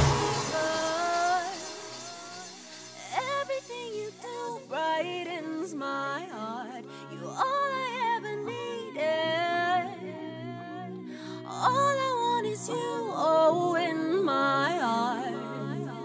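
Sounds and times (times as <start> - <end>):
sustained low notes: 0.0 - 2.4
song with sung vocals: 0.0 - 16.0.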